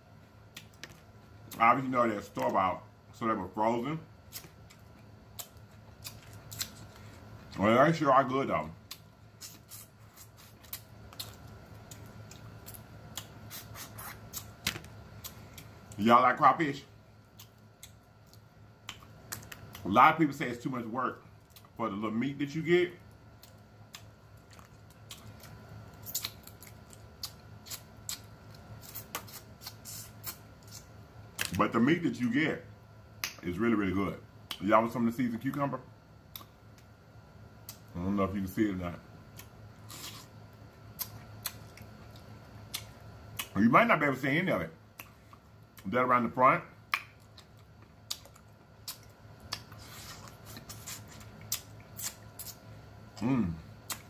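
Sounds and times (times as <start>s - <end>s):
lip smacking and chewing: 0.5s - 1.6s, 4.3s - 7.4s, 8.8s - 16.0s, 17.3s - 19.9s, 21.4s - 21.8s, 23.4s - 31.6s, 36.3s - 36.9s, 37.6s - 37.9s, 41.0s - 43.6s, 44.9s - 45.9s, 46.9s - 53.2s
wet sucking and eating sounds: 27.6s - 30.9s, 39.8s - 40.4s.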